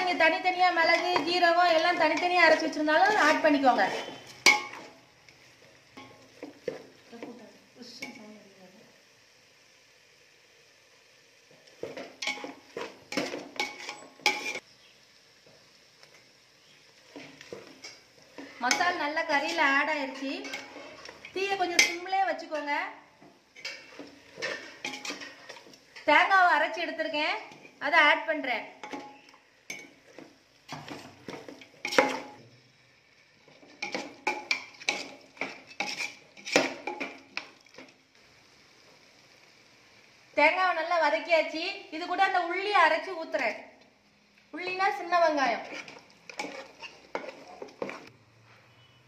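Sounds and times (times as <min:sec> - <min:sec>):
metal spoon scraping metal pot: 0:00.9 - 0:04.9, 0:13.2 - 0:14.6, 0:18.6 - 0:22.0, 0:23.6 - 0:25.7, 0:33.8 - 0:37.0, 0:45.6 - 0:48.0.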